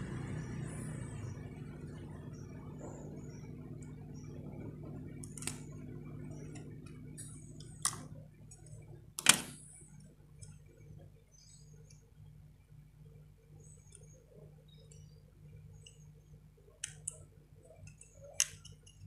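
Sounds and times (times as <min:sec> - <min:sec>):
low steady hum: 0:00.0 - 0:19.0
scissors snipping wires: 0:05.2 - 0:05.8.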